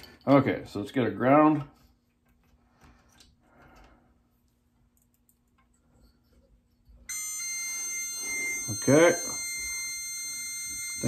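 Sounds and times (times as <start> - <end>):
multimeter continuity beep: 7.1 - 11.0.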